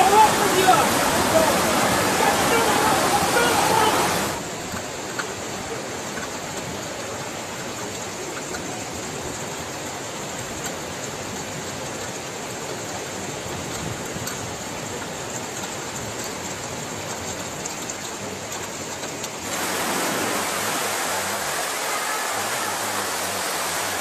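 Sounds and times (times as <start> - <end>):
floodwater rushing: 0.0 - 24.0.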